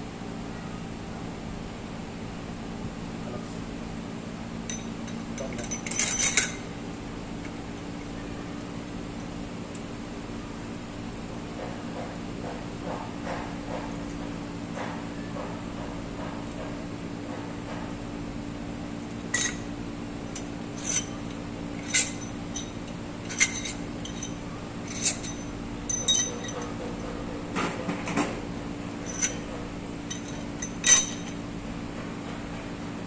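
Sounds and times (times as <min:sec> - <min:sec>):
metal wrench and parts clinking: 0:04.7 - 0:06.7, 0:19.3 - 0:19.7, 0:20.3 - 0:26.9, 0:28.9 - 0:31.5.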